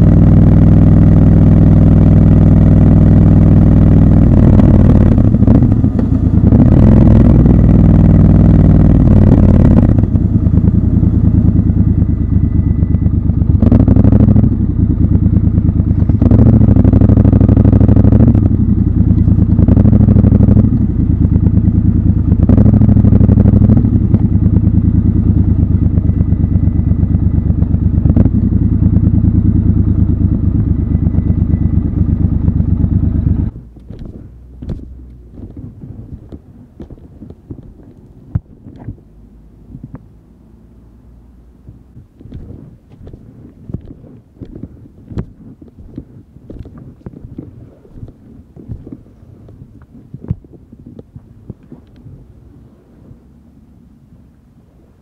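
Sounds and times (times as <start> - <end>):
gravel clatter: 0.0 - 29.3, 30.1 - 40.1, 41.6 - 53.2
motorcycle engine: 0.0 - 53.6
wind noise: 32.6 - 40.4, 41.5 - 55.0.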